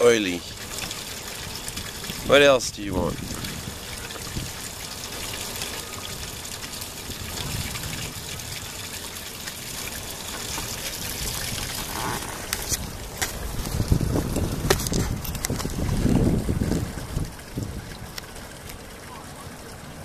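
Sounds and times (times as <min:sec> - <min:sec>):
water trickling over rocks: 0:00.0 - 0:20.0
wind buffeting microphone: 0:01.7 - 0:04.6, 0:07.0 - 0:08.7, 0:11.0 - 0:18.2.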